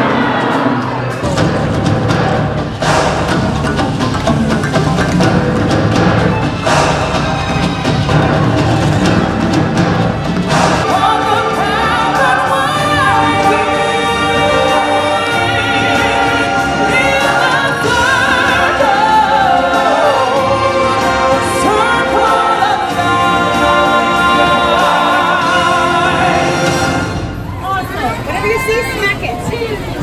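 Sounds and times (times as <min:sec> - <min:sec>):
choir singing with vibrato: 0:00.0 - 0:01.6, 0:06.2 - 0:27.6
instrumental backing music: 0:00.8 - 0:27.5.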